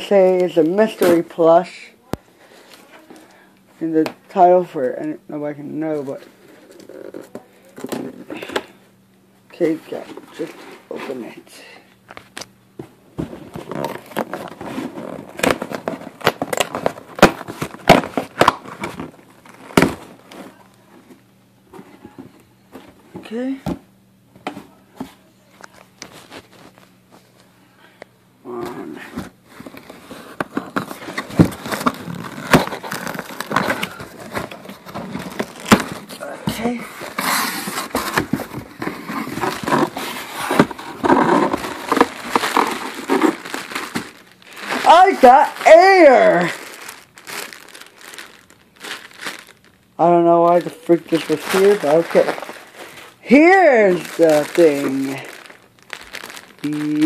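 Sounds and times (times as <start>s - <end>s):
cardboard box ripping: 30.6s - 49.7s, 50.5s - 57.0s.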